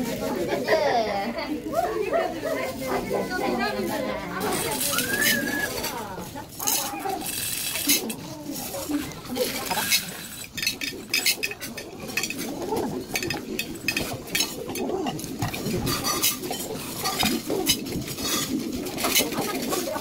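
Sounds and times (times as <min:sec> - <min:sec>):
dried beans clattering into bowl: 0:04.3 - 0:20.0.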